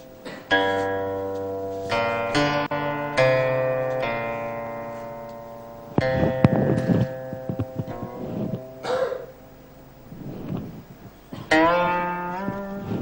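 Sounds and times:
plucked string instrument notes: 0:00.0 - 0:13.0.

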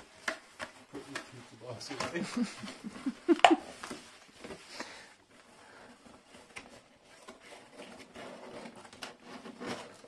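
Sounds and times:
cardboard box being folded: 0:06.0 - 0:10.0.

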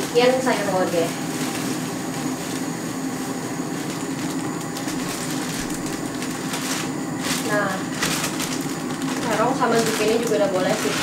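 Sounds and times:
low kitchen rumble: 0:00.0 - 0:11.0
plastic bag crinkling: 0:03.7 - 0:11.0.

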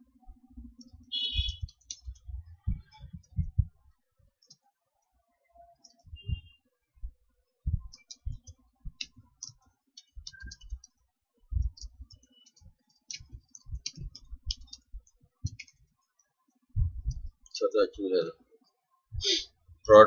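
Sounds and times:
computer keyboard typing: 0:00.8 - 0:03.5, 0:07.8 - 0:11.0, 0:11.6 - 0:15.9.

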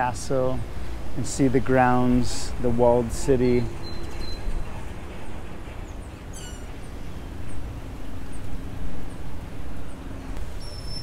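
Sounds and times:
small birds chirping: 0:03.5 - 0:11.0.

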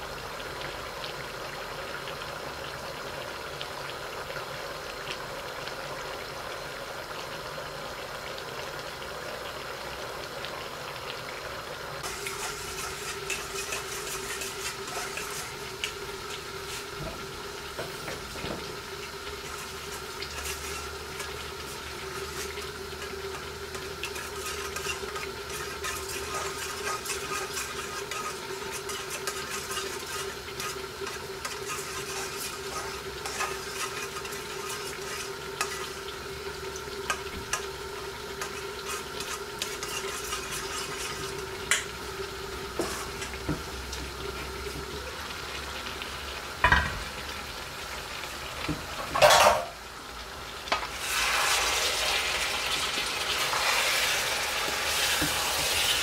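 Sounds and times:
bubbling hiss of cooking: 0:00.0 - 0:56.0
crackles and spits: 0:12.0 - 0:17.1, 0:17.9 - 0:36.2.

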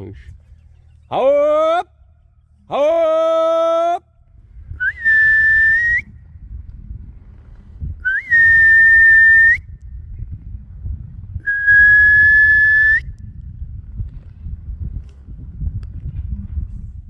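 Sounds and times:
person whistling loudly: 0:04.8 - 0:06.1, 0:08.0 - 0:09.6, 0:11.4 - 0:13.1.

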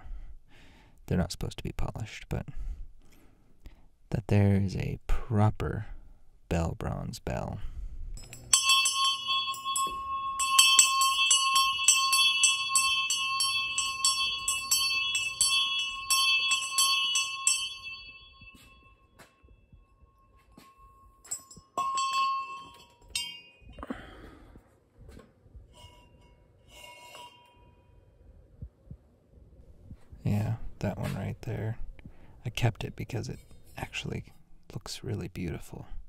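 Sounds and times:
bronze bell ringing rapidly: 0:08.2 - 0:23.8.

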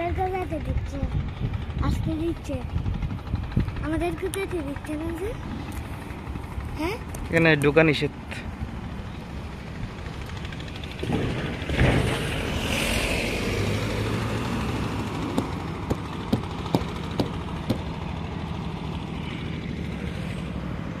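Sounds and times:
low engine hum: 0:00.0 - 0:21.0
sharp ticks: 0:04.1 - 0:05.9
pickup truck driving past: 0:09.9 - 0:21.0.

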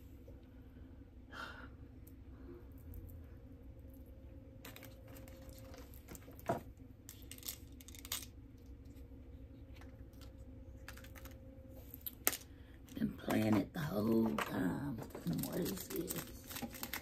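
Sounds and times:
packaging handled with clicks: 0:14.5 - 0:17.0.

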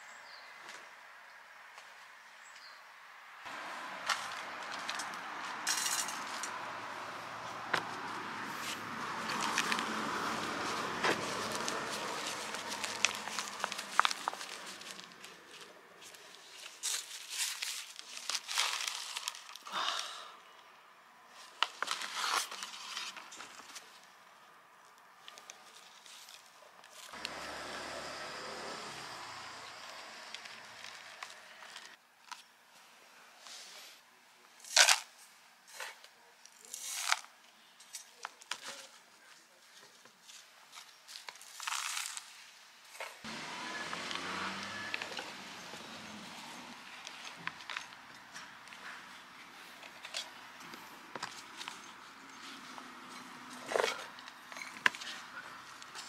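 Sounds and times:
plastic pot crinkling and rustling: 0:07.7 - 0:19.7, 0:21.4 - 0:24.2, 0:34.6 - 0:49.0, 0:49.7 - 0:52.8, 0:53.5 - 0:56.0.

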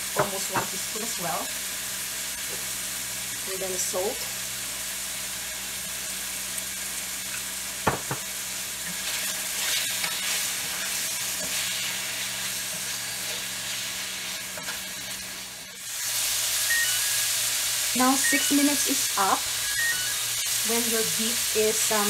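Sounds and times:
meat sizzling in a pan: 0:00.0 - 0:22.0
wooden spatula stirring in pan: 0:08.8 - 0:15.7.

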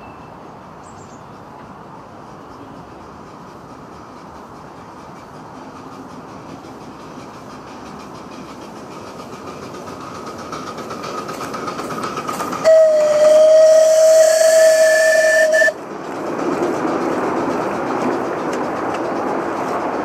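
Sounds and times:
miniature steam train rolling: 0:00.0 - 0:20.0
steam locomotive whistle: 0:12.6 - 0:15.8.

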